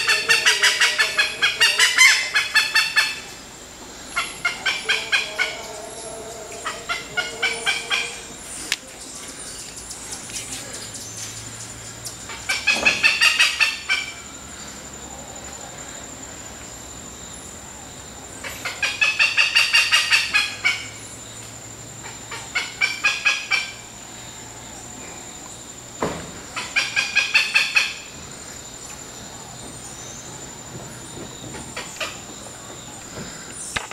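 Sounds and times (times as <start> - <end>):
monkey calling rapidly: 0.0 - 3.5, 4.1 - 8.6, 12.2 - 14.3, 18.4 - 21.0, 22.0 - 23.9, 26.5 - 28.2.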